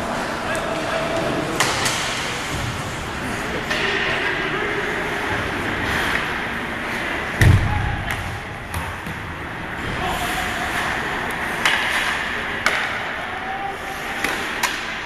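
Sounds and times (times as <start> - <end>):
crowd murmur: 0.0 - 15.0
sticks striking puck: 1.6 - 2.2, 10.7 - 13.3, 14.0 - 15.0
skates on ice: 4.7 - 7.4.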